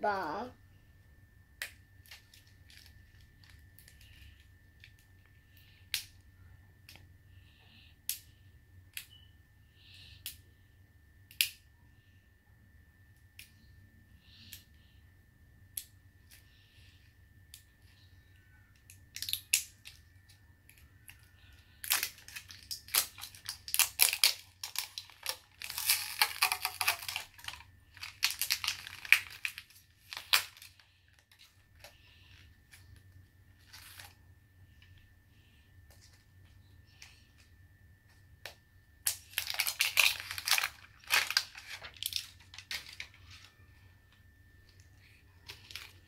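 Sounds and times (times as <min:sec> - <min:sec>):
wrapping crinkling and tearing: 0:02.0 - 0:05.0, 0:18.9 - 0:20.0, 0:20.7 - 0:34.2, 0:39.0 - 0:43.7, 0:45.0 - 0:46.0.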